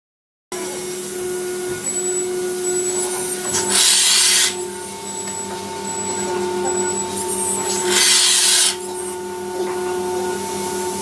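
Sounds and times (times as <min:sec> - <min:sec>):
robot machinery humming: 0:00.6 - 0:10.4.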